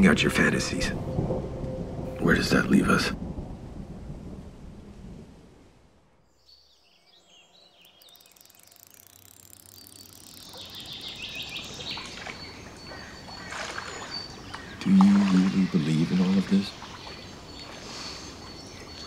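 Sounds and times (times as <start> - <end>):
birds chirping: 6.3 - 19.0
rain: 8.0 - 19.0.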